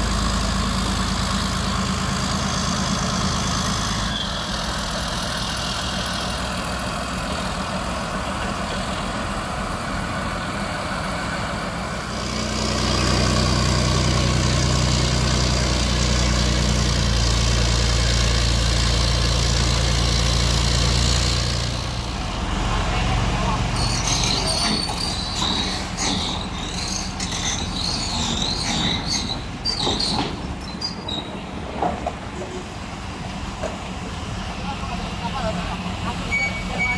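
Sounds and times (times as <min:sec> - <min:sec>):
tank diesel engine running: 0:00.0 - 0:36.9.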